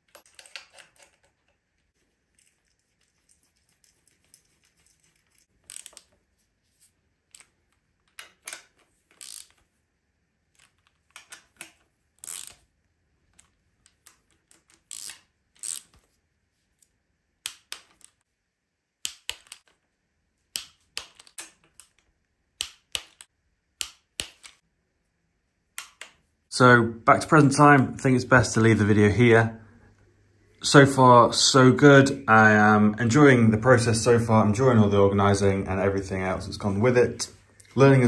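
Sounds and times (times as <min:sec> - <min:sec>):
hand ratchet clicking: 0:14.9 - 0:15.8.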